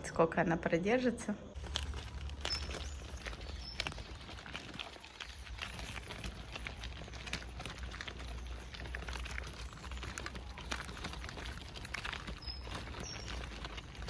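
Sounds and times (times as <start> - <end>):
footsteps on gravel: 1.6 - 14.0
pram wheels on gravel: 1.6 - 14.0.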